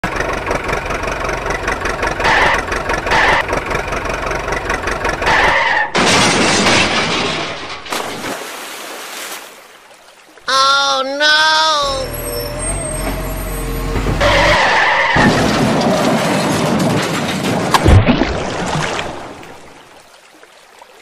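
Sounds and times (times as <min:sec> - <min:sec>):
toy truck engine sound: 0:00.0 - 0:06.0, 0:11.6 - 0:15.6
water splashing: 0:07.9 - 0:11.2, 0:17.6 - 0:21.0.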